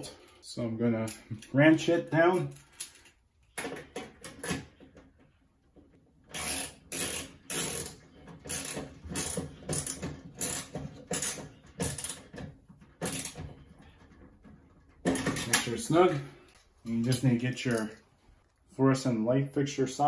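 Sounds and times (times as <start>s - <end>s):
ratchet wrench clicking: 6.3s - 12.3s, 13.0s - 13.4s.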